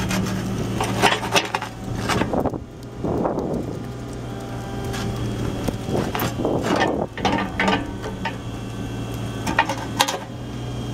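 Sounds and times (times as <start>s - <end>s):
excavator diesel engine running: 0.0s - 10.9s
hydraulic noise surges: 0.0s - 10.9s
sharp metallic clanks: 6.7s - 8.4s.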